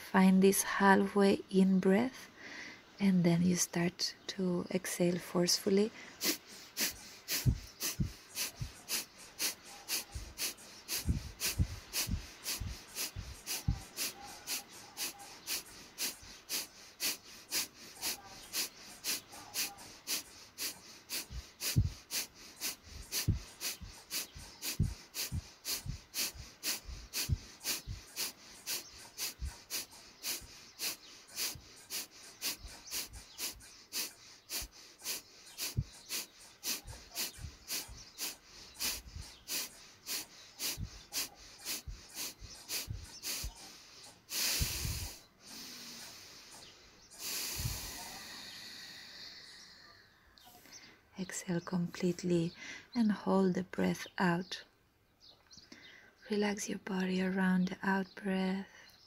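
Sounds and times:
forceful breath exhalations: 0:05.9 - 0:51.1.

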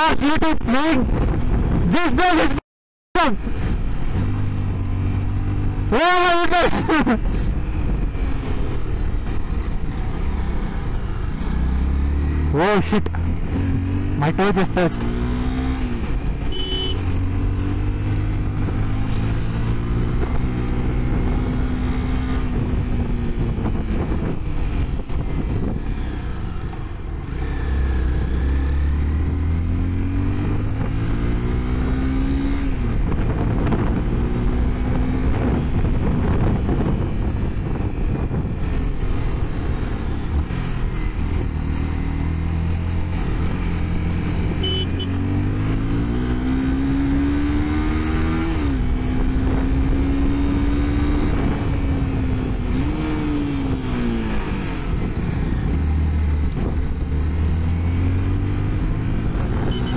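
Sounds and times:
motorcycle engine revving: 0:03.6 - 0:59.9.

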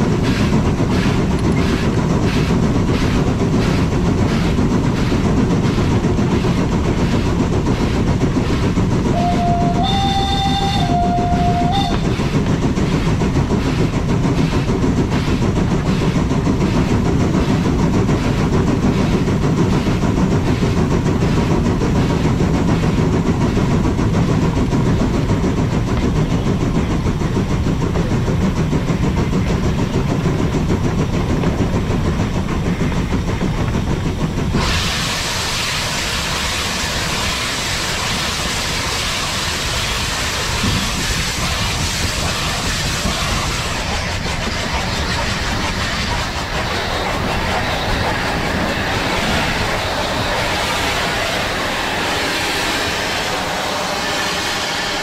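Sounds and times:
steam locomotive rumble and clatter: 0:00.0 - 0:55.0
short whistle: 0:09.2 - 0:12.0.

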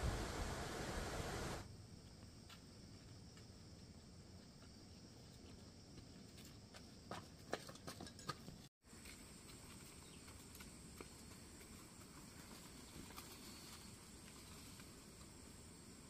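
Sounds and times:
faint outdoor hiss: 0:00.0 - 0:16.0.

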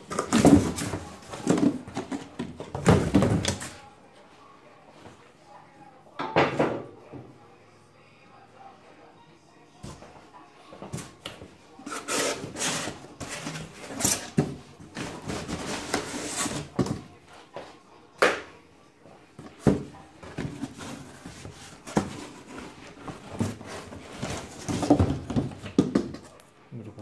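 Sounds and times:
cardboard rubbing and scraping: 0:11.9 - 0:14.0, 0:14.9 - 0:16.8, 0:20.4 - 0:25.4.

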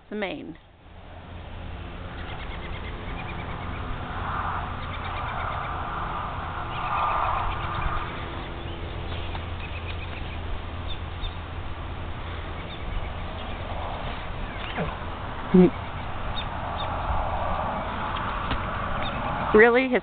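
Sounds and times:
steady low hum: 0:00.0 - 0:20.0
small birds chirping: 0:02.0 - 0:04.0, 0:04.6 - 0:05.8, 0:06.7 - 0:11.6, 0:12.2 - 0:20.0
loud noisy rushes: 0:03.9 - 0:09.1.

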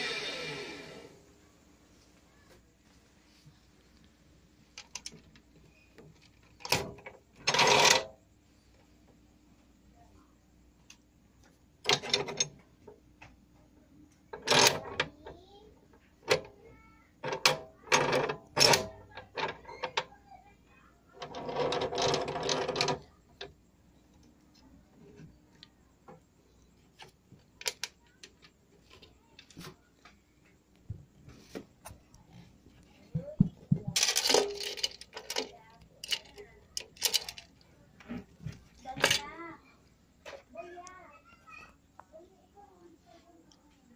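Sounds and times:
scraping rattle: 0:21.2 - 0:23.1, 0:33.2 - 0:39.4
metal fittings clicking and rattling: 0:33.9 - 0:37.6.

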